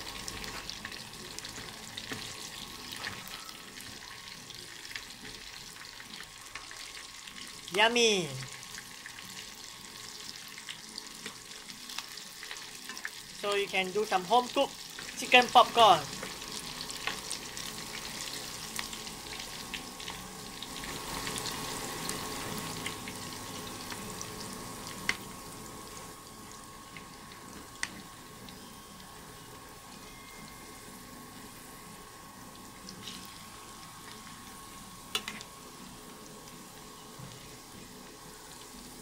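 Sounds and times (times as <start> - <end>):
food deep-frying in oil: 0.0 - 39.0
faint steady whine: 14.5 - 39.0.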